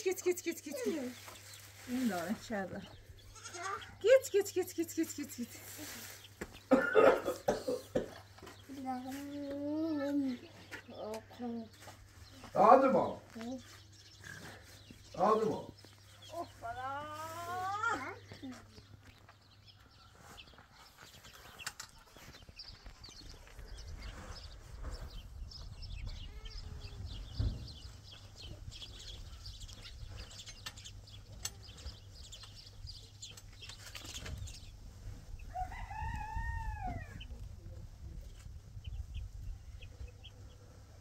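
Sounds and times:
chickens chirping and clucking: 0.0s - 41.0s
chicken drawn-out call: 35.4s - 37.3s.

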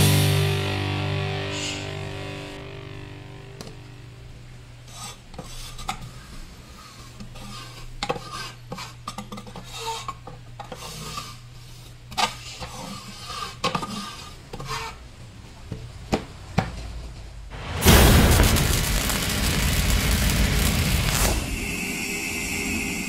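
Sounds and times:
loud rushing noise: 17.5s - 23.0s.

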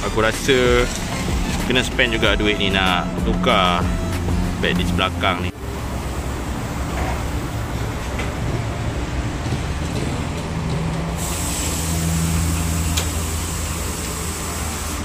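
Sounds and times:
low mechanical hum: 3.6s - 15.0s
high hiss: 11.2s - 15.0s.

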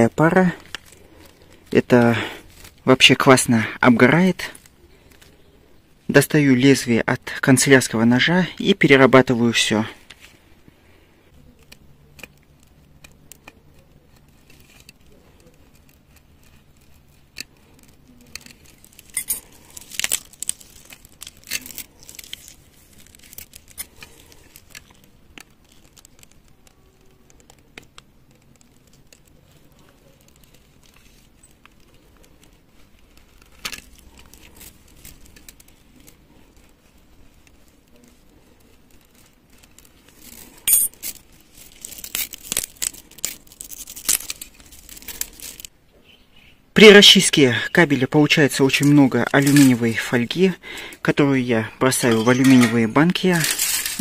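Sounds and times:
foil shielding crackling: 0.0s - 45.8s, 46.8s - 54.0s
knife slitting cable sheath: 11.6s - 45.7s.

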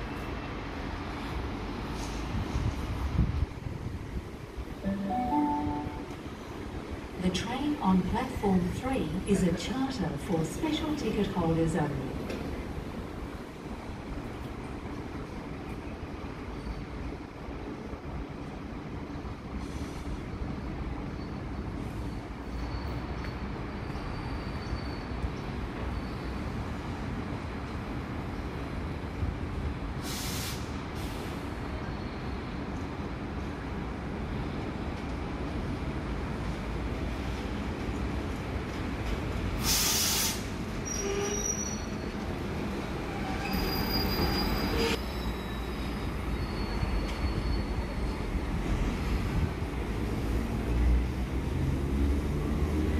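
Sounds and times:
electric train rumbling: 0.0s - 52.9s
faint thin high tone: 4.8s - 6.2s
train wheel squeals: 19.6s - 26.7s, 40.8s - 42.3s, 43.0s - 48.3s
loud hiss: 30.0s - 31.4s, 39.6s - 40.5s.

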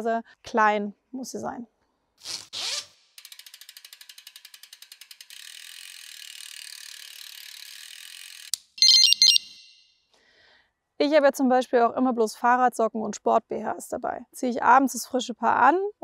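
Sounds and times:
rapid ratchet-like clicking: 3.0s - 8.8s.

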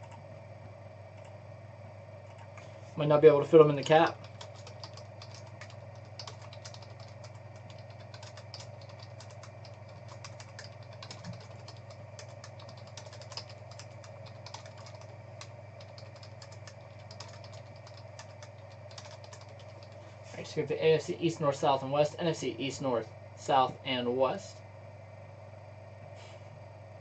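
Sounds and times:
steady low hum: 0.0s - 27.0s
computer keyboard typing: 3.7s - 20.0s.

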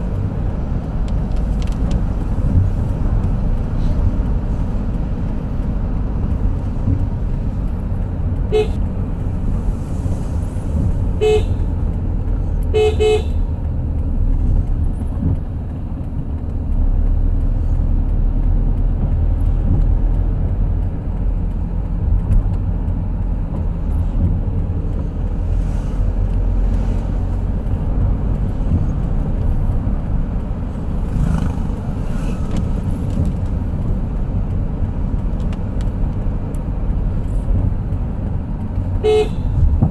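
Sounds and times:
vehicle engine and road noise: 0.0s - 39.9s
horn toots: 8.5s - 8.8s, 11.2s - 11.7s, 12.7s - 13.4s, 39.0s - 39.6s.

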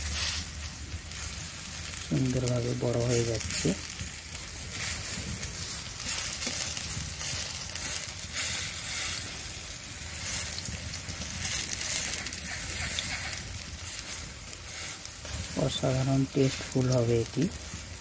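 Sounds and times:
fritters sizzling in oil: 0.0s - 18.0s
metal spatula scraping wok: 4.7s - 17.0s.

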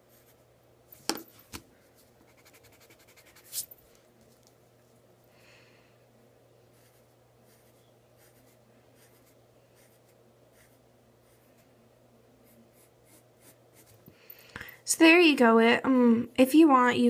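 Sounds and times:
pencil scratching on paper: 0.0s - 0.5s, 2.2s - 3.7s, 6.7s - 11.7s, 12.4s - 14.0s
faint low hum: 0.0s - 17.0s.

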